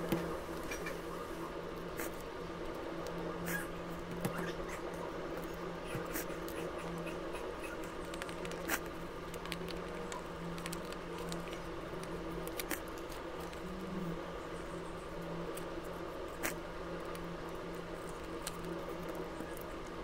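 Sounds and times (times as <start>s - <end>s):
steady low hum: 0.0s - 20.0s
paper crinkling: 8.0s - 13.7s.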